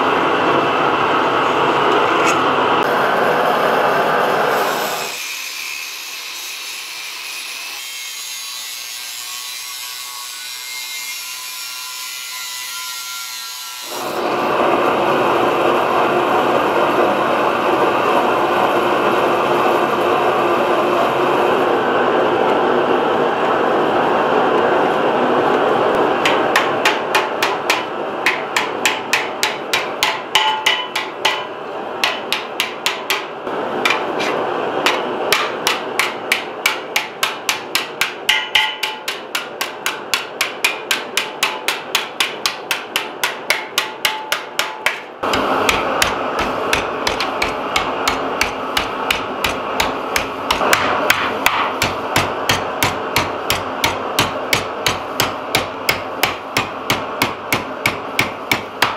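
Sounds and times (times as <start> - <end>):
hammer striking sheet metal: 26.2 - 58.9.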